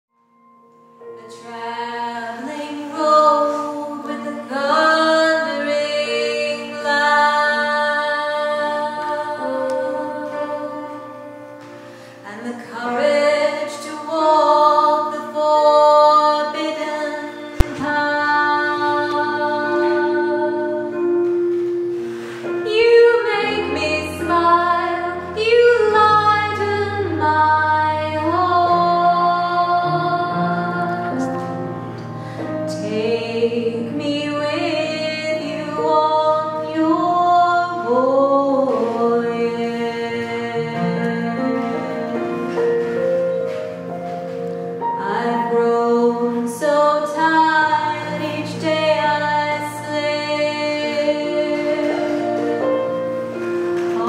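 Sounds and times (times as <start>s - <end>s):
woman singing slow melody: 1.1s - 11.6s, 12.2s - 21.7s, 22.4s - 43.9s, 44.8s - 54.0s
sharp click: 17.6s - 17.9s.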